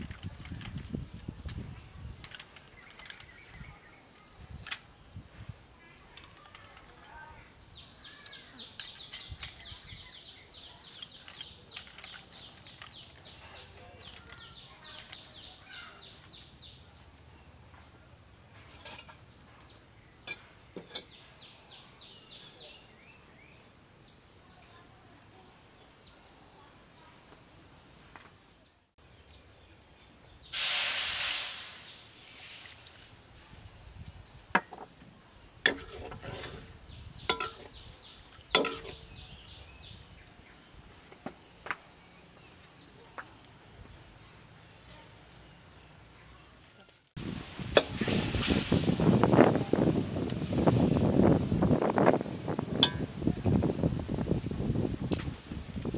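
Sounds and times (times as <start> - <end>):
liquid hissing in hot wok: 30.5 - 34.2, 47.2 - 51.8.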